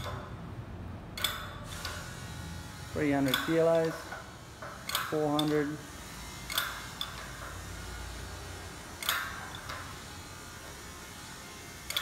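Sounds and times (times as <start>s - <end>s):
sharp metallic clanks with ring: 3.2s - 4.2s.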